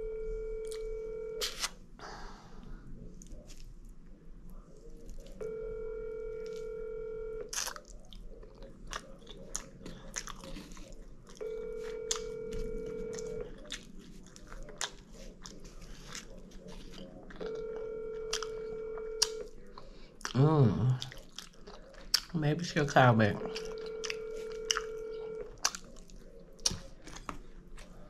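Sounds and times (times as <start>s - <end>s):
telephone ringback tone: 0.0s - 1.4s, 5.4s - 7.5s, 11.4s - 13.4s, 17.4s - 19.4s, 23.4s - 25.5s
person chewing: 0.6s - 1.8s, 7.4s - 28.0s.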